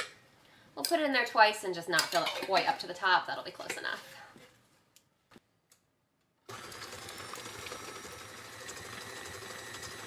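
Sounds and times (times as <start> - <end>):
stand mixer running: 6.5 - 10.0.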